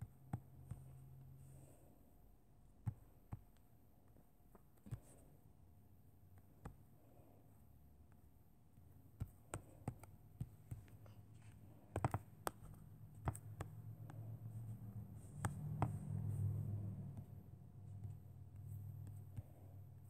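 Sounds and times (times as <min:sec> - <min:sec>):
faint low hum: 0:00.0 - 0:20.0
taps on a touchscreen: 0:11.8 - 0:14.3, 0:15.3 - 0:16.2.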